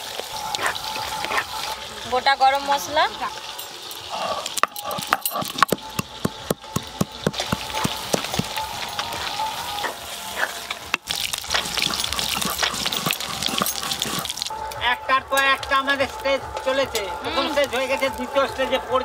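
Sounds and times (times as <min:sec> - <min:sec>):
oil sizzling and crackling: 0:00.0 - 0:14.8, 0:15.6 - 0:18.9
spatula stirring in pot: 0:10.4 - 0:14.5.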